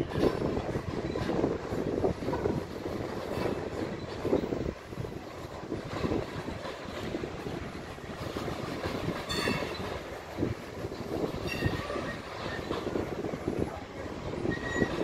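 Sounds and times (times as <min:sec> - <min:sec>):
train wheels rumbling and clattering: 0:00.0 - 0:15.0
high wheel squeals: 0:09.2 - 0:10.0, 0:11.0 - 0:12.8, 0:14.4 - 0:15.0.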